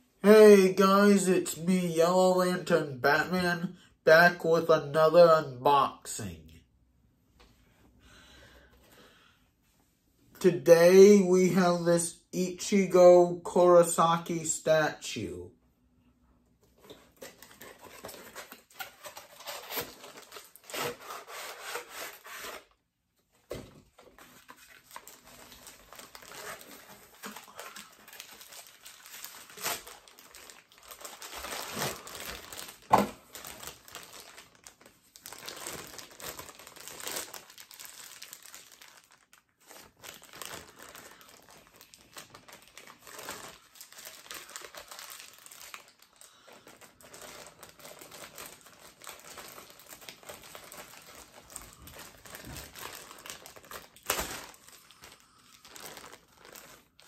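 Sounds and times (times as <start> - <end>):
packaging crinkling: 16.8 - 22.7, 23.9 - 57.0
packaging tearing: 17.2 - 22.7, 24.1 - 57.0.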